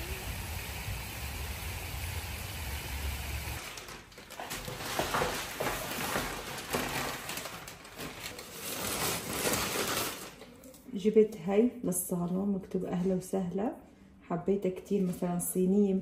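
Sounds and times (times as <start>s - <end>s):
rustling of items: 3.6s - 11.0s.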